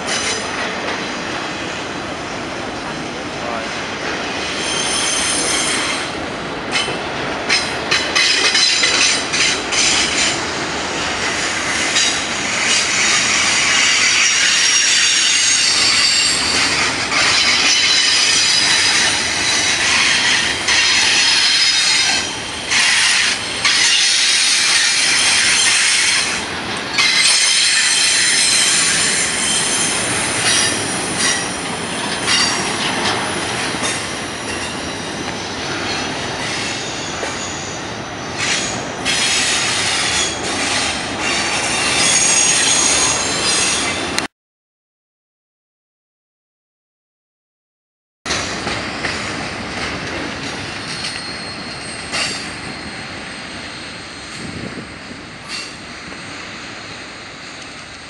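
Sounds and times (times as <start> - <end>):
train wheels rumbling: 0.0 - 44.3, 48.3 - 58.0
wheel flanges squealing: 13.8 - 44.2, 50.7 - 54.4.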